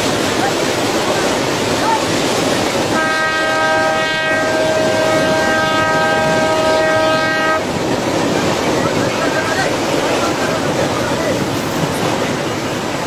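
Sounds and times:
surf rushing: 0.0s - 13.0s
wind: 0.0s - 13.0s
locomotive horn blast: 2.9s - 7.7s.

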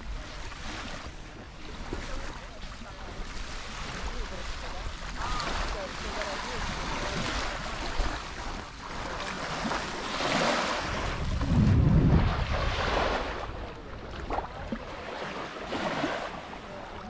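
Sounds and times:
small waves washing onto sand: 0.0s - 17.0s
wind buffeting microphone: 10.2s - 15.1s.

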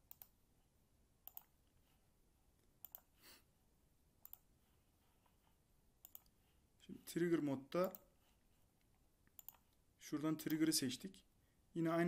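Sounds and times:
computer mouse clicking: 0.0s - 0.4s, 1.2s - 1.5s, 2.8s - 3.1s, 4.2s - 4.5s, 6.0s - 6.3s, 9.3s - 9.8s.

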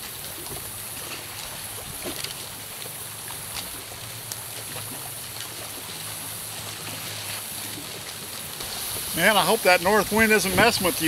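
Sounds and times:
fish sizzling in hot oil: 8.6s - 11.0s.

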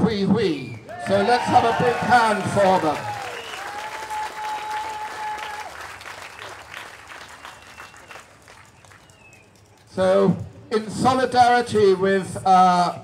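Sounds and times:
crowd applauding: 0.9s - 9.9s.

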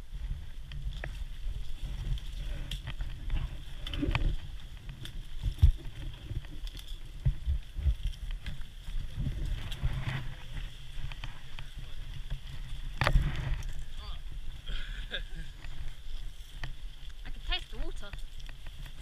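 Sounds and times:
rustling on microphone: 0.0s - 19.0s.

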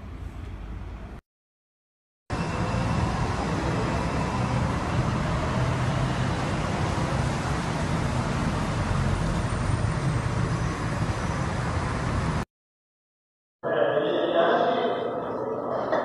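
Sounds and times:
city traffic rumble: 2.3s - 12.5s.

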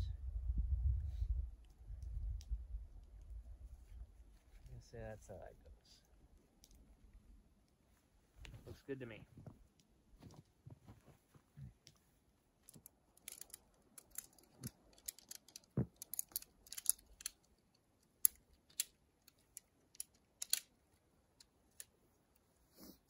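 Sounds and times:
tent pole sections clicking: 12.6s - 22.5s.

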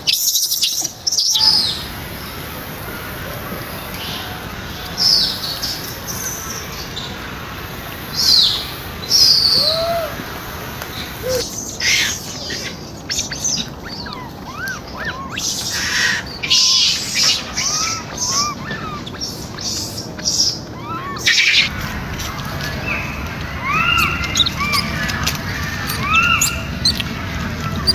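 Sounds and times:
birds chirping: 0.0s - 27.9s
bursts of hiss: 1.1s - 12.2s.

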